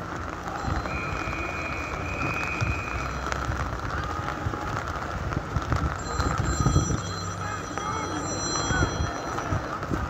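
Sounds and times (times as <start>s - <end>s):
heavy rain falling: 0.0s - 10.0s
steady high tone: 6.0s - 9.7s.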